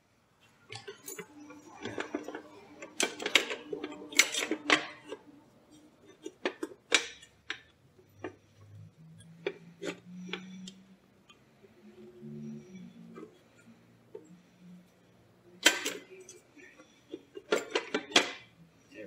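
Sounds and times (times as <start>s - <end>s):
metallic clicks and knocks: 0.7s - 11.4s, 15.5s - 18.6s.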